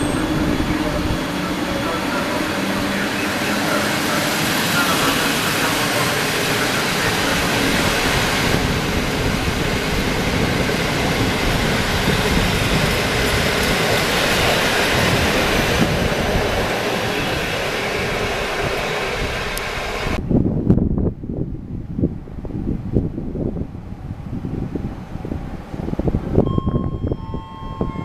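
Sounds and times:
train wheels rumbling on rails: 0.0 - 21.4.

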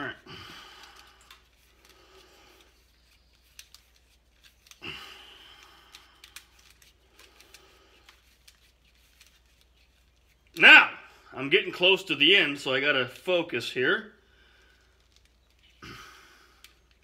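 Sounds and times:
small clicks and ticks: 0.8 - 4.8, 5.4 - 10.4, 14.7 - 15.8, 16.5 - 17.0
line rubbing on plastic spool: 6.3 - 10.5.

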